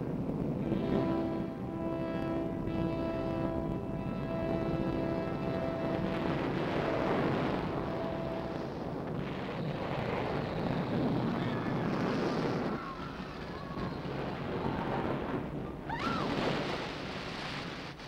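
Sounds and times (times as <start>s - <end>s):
volcano eruption rumble: 0.0s - 18.0s
orchestral music notes: 0.6s - 8.8s.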